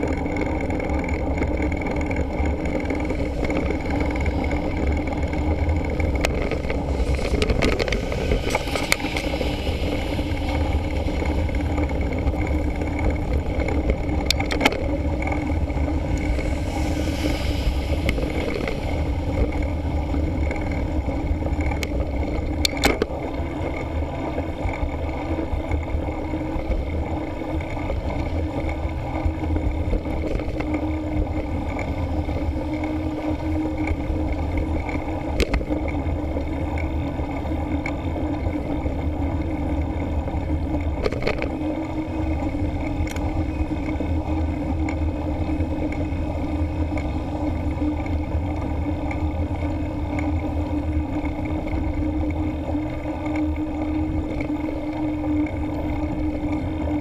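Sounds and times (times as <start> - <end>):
passing road traffic: 0.0 - 57.0
wind and road noise: 0.0 - 57.0
truck passing with hiss: 6.8 - 12.1, 16.0 - 20.4.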